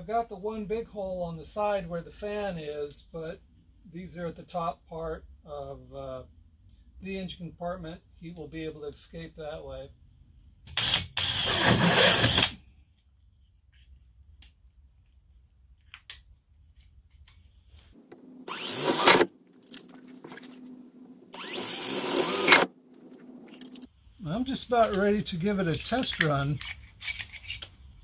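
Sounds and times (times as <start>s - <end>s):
cordless drill boring plastic: 10.8s - 12.6s, 18.1s - 19.3s, 21.3s - 23.9s.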